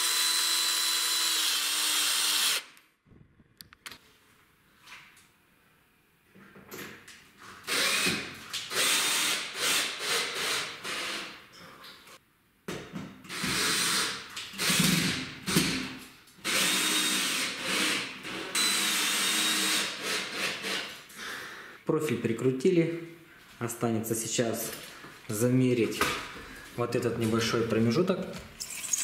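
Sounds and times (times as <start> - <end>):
electric drill driving screws: 0.0 - 2.8, 7.6 - 11.3, 13.3 - 15.6, 16.4 - 20.9.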